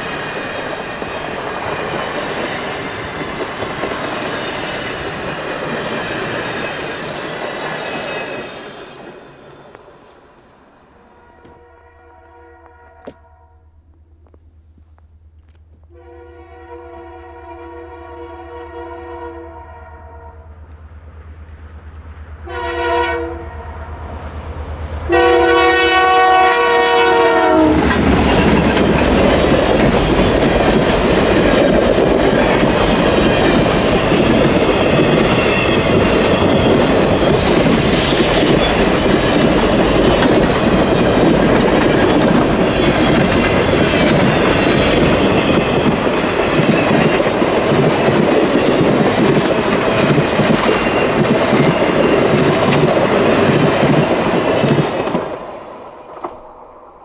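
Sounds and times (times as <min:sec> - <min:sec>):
train passing with wheel noise: 0:00.0 - 0:57.0
diesel locomotive horn blasts: 0:11.0 - 0:13.8, 0:15.9 - 0:20.7, 0:22.4 - 0:24.2, 0:25.1 - 0:28.4
wheels clicking over rail joints: 0:27.7 - 0:55.3.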